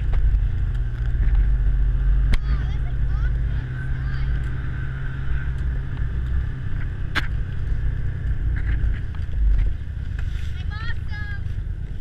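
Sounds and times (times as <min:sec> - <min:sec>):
sled rumbling over packed snow: 0:00.0 - 0:12.0.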